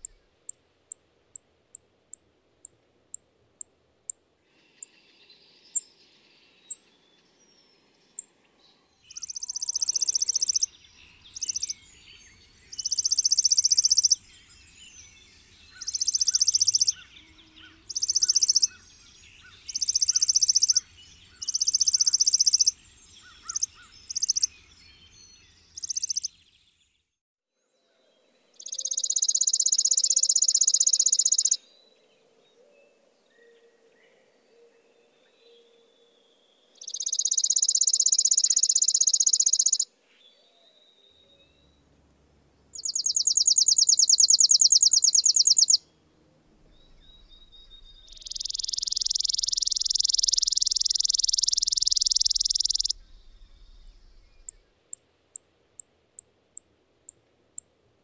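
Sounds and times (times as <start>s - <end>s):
sparrow chips and trills: 9.0s - 26.7s, 28.6s - 31.6s, 36.8s - 39.9s, 42.8s - 45.8s, 46.8s - 55.0s.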